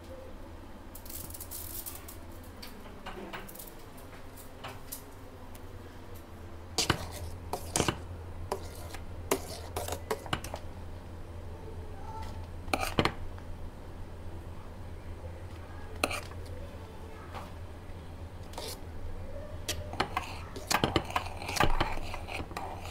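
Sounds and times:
noodles stirred in water: 0:06.8 - 0:10.6, 0:18.4 - 0:18.8, 0:19.6 - 0:22.9.

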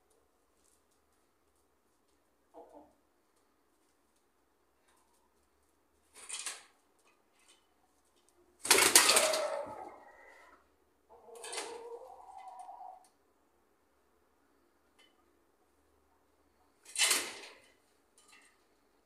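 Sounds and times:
chickens: 0:00.1 - 0:06.1, 0:07.4 - 0:13.4
chicken pitched call: 0:09.0 - 0:13.1.

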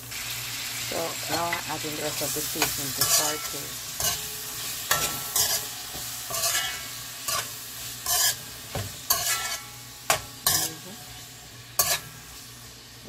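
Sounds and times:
vegetables sizzling: 0:00.0 - 0:13.0
metal spoon scraping pot: 0:06.3 - 0:08.4, 0:09.1 - 0:10.8, 0:11.8 - 0:12.1.

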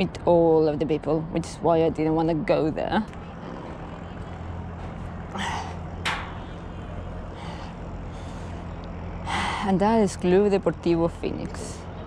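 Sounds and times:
low hum of riding noise: 0:00.0 - 0:12.0
sharp breaths: 0:07.3 - 0:09.7.

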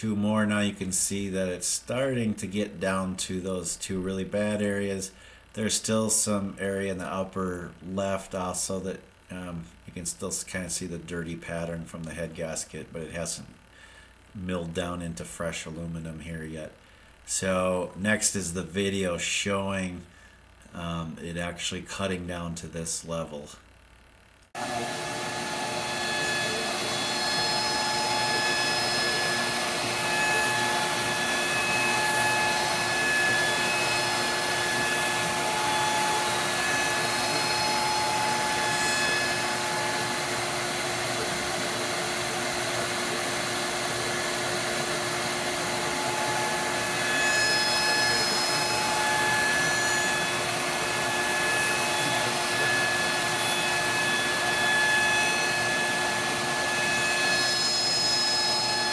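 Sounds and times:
dust collector running: 0:24.6 - 0:58.9
router spindle milling metal: 0:24.6 - 0:58.9.

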